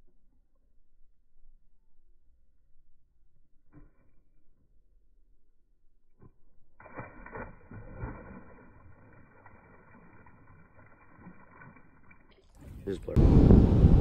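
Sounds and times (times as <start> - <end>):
muffled fish splash: 6.2 - 12.8
dull water noise: 6.2 - 14.0.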